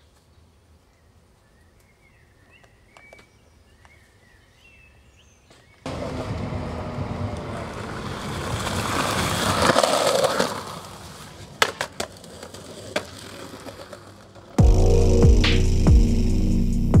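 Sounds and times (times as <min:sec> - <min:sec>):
skateboard wheels rolling: 0:05.5 - 0:14.6
skateboard clacking on concrete: 0:07.3 - 0:14.6.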